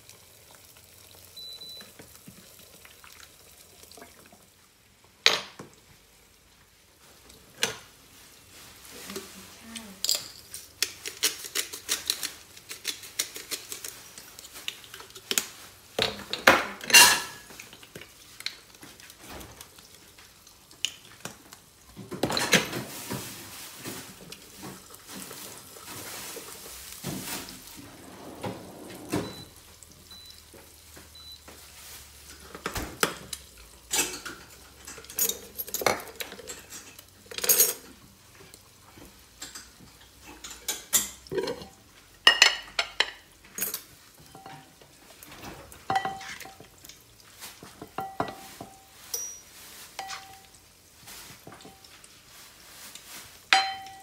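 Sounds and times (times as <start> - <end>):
dishes and utensils clinking: 27.0 - 29.5, 33.9 - 37.9, 39.4 - 46.7, 47.8 - 50.6, 53.5 - 54.0.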